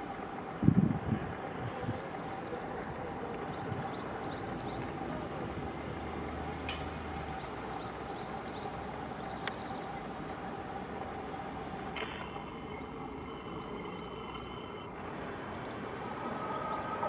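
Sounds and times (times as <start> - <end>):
electric train rumble: 0.0 - 17.0
faint constant hum: 0.0 - 17.0.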